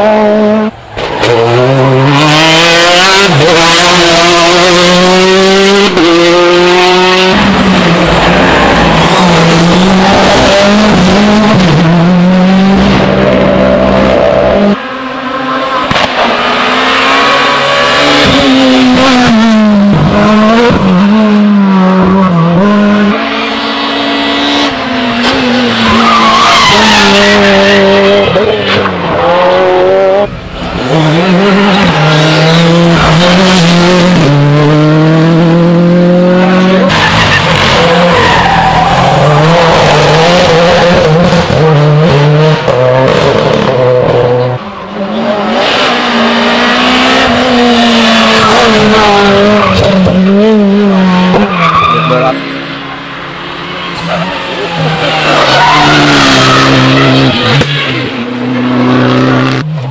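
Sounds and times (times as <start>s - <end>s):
rally car engines revving: 0.0s - 59.9s.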